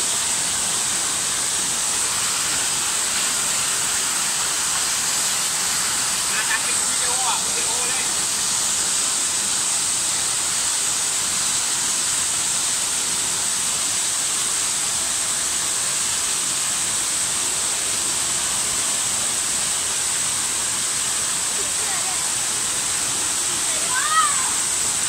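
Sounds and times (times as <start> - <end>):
small waterfall rushing: 0.0 - 25.0.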